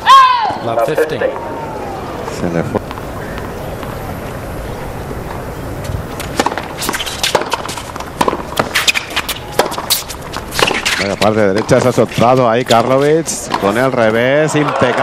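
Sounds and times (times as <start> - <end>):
crowd murmur: 0.5 - 6.2
footsteps on court: 5.2 - 15.0
ball bouncing: 6.2 - 12.9
rackets striking ball: 6.2 - 15.0.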